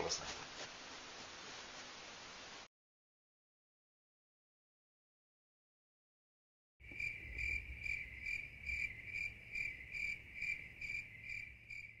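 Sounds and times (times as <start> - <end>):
cricket chirping: 6.8 - 12.0.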